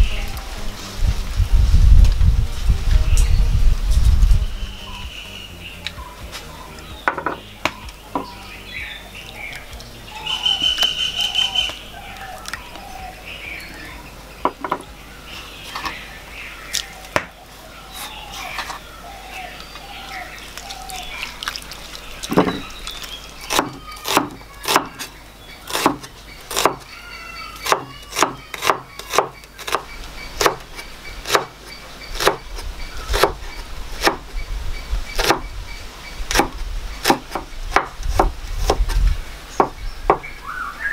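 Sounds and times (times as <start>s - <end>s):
birds chirping: 0.0s - 1.0s, 2.9s - 40.9s
cleaver chopping on wooden board: 7.0s - 8.4s, 17.1s - 17.4s, 23.5s - 25.0s, 25.7s - 26.9s, 27.6s - 31.6s, 32.2s - 33.4s, 34.0s - 34.2s, 35.2s - 35.5s, 36.3s - 39.0s, 39.6s - 40.3s.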